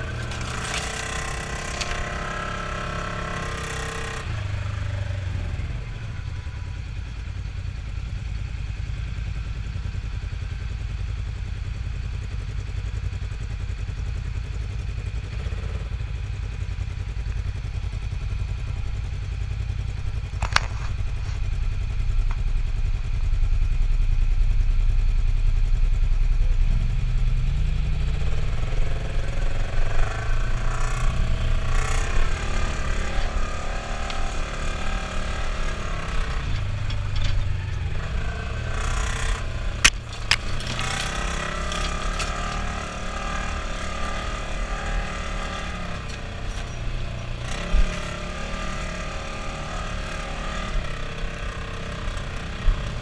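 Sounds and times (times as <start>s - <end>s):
off-road vehicle engine revving: 0.0s - 7.0s, 26.5s - 53.0s.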